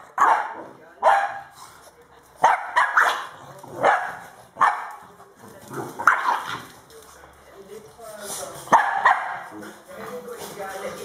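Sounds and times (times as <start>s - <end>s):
dog barking sharply: 0.2s - 1.5s, 2.4s - 4.9s, 8.7s - 9.4s.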